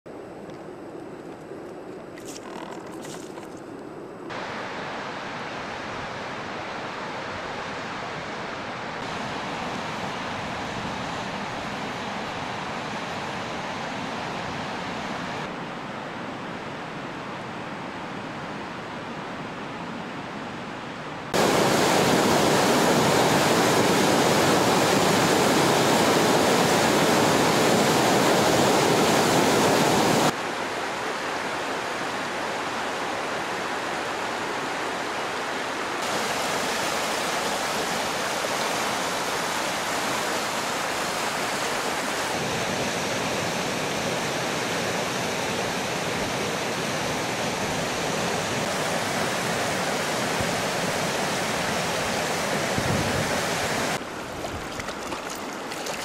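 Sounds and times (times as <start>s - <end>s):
water rushing over rocks: 21.4s - 56.0s.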